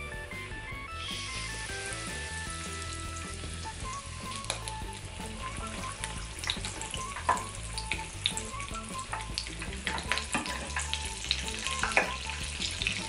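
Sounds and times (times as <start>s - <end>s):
oil bubbling and sizzling: 0.9s - 13.0s
sharp crackling pops: 1.1s - 13.0s.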